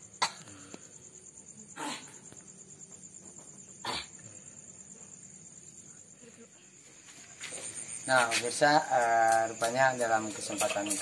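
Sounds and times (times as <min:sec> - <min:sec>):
crickets chirring: 0:00.0 - 0:11.0
person hacking out mucus: 0:00.2 - 0:00.5.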